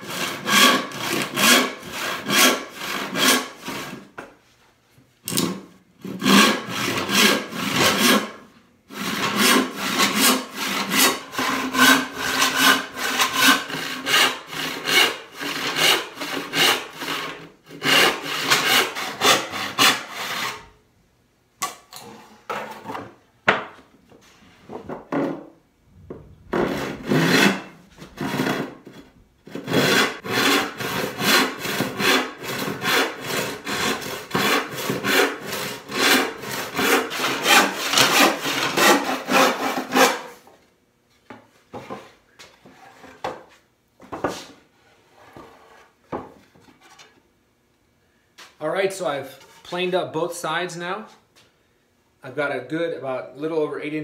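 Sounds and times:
handsaw rasping through wood: 0:00.0 - 0:04.0, 0:05.3 - 0:20.6, 0:26.5 - 0:28.9, 0:29.5 - 0:40.4.

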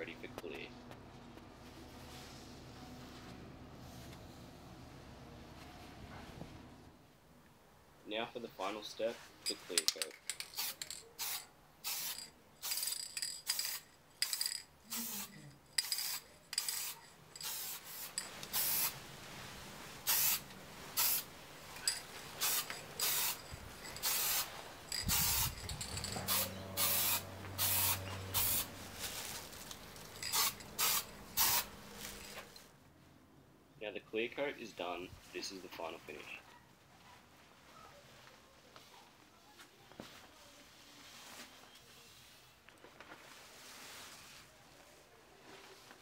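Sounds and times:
aerosol spray can hissing: 0:10.6 - 0:19.0, 0:20.0 - 0:21.3, 0:22.4 - 0:23.4, 0:24.0 - 0:28.7, 0:30.2 - 0:31.7.

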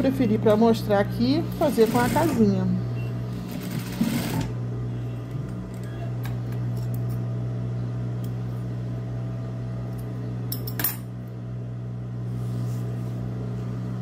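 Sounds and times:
sewing machine motor humming: 0:01.3 - 0:02.6, 0:03.3 - 0:04.6.

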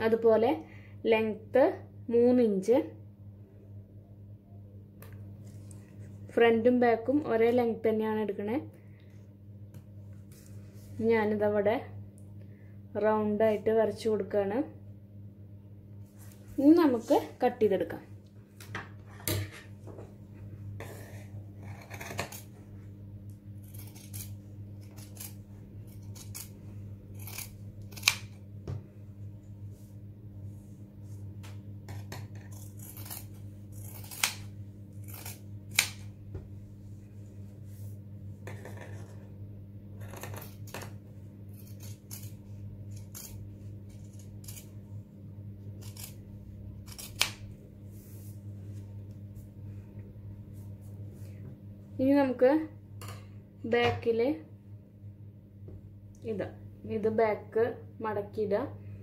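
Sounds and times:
steady low hum: 0:00.0 - 0:59.0
scissor blades clicking: 0:23.6 - 0:26.6, 0:27.2 - 0:28.4, 0:41.6 - 0:44.7, 0:45.8 - 0:46.2, 0:46.8 - 0:47.4
scissors snipping fabric: 0:23.6 - 0:28.4, 0:31.9 - 0:36.1, 0:41.5 - 0:44.7, 0:45.8 - 0:46.2, 0:46.8 - 0:47.5.

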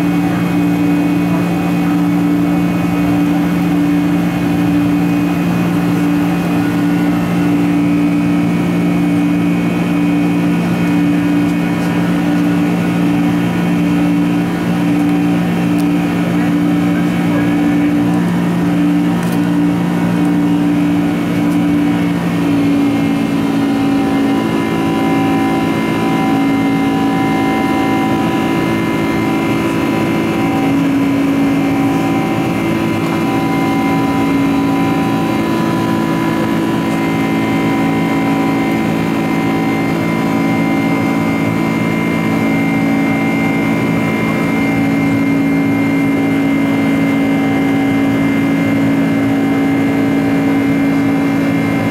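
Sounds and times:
jet engine drone in cabin: 0:00.0 - 0:51.9.

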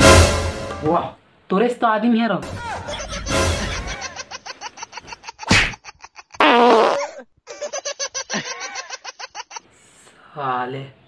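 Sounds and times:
man laughing hard: 0:02.6 - 0:06.4, 0:07.0 - 0:09.6.

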